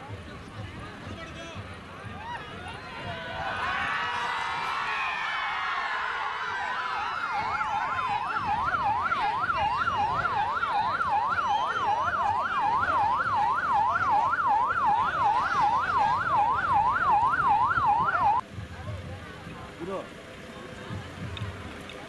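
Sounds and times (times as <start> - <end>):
electronic siren yelping: 6.6 - 18.4.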